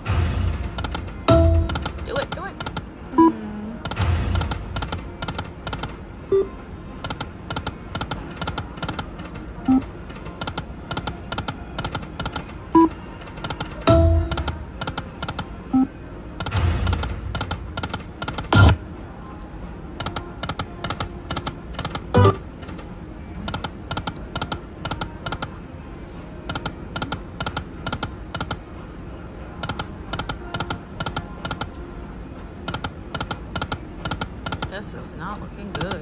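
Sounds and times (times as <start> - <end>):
loud thumps: 0.0 - 2.8
slot machine background sound: 1.3 - 2.6, 22.2 - 22.5.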